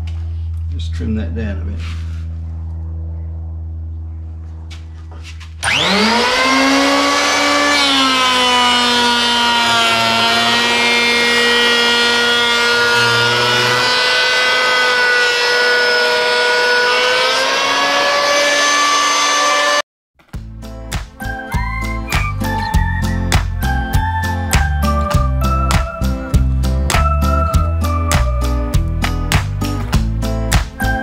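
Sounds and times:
low hum: 0:00.0 - 0:18.1
electric hand planer: 0:05.6 - 0:19.8.

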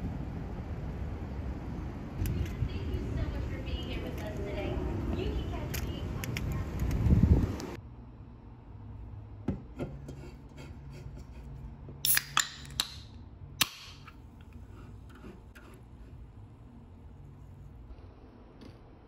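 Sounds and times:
low steady hum: 0:00.0 - 0:19.0
can opening fizzing hiss: 0:12.0 - 0:12.4.

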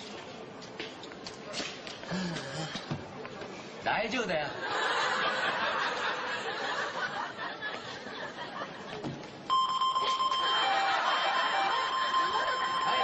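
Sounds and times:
people laughing: 0:04.5 - 0:09.3, 0:10.1 - 0:13.0
metal detector alarm tone: 0:09.5 - 0:13.0
pulsing low beep: 0:09.5 - 0:13.0.

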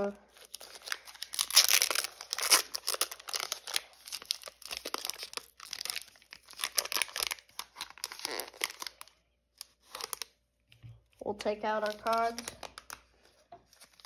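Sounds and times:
foil crinkling: 0:00.2 - 0:10.3, 0:11.6 - 0:14.0
foil wrapper tearing: 0:00.3 - 0:10.3.

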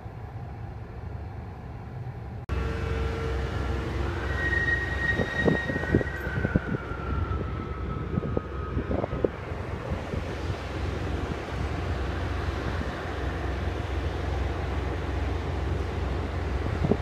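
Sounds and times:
wind buffeting microphone: 0:04.8 - 0:17.0.

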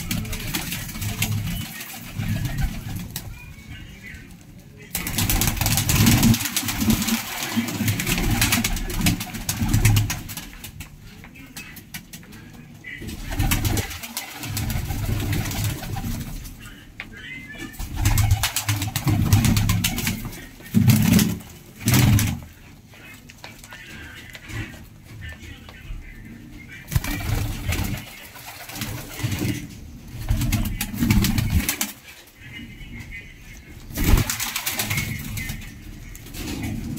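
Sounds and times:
loud rustling bursts: 0:00.0 - 0:03.4, 0:04.9 - 0:10.9, 0:13.1 - 0:16.6, 0:17.8 - 0:22.6, 0:26.9 - 0:32.1, 0:33.9 - 0:36.9
pigeons cooing: 0:00.0 - 0:04.3, 0:04.9 - 0:36.9.

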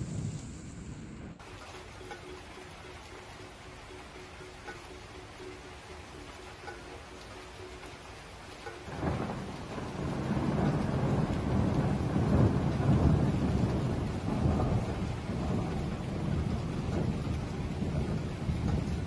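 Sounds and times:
thunder rumbling: 0:00.0 - 0:01.4, 0:08.8 - 0:19.0
rain: 0:00.0 - 0:19.0.

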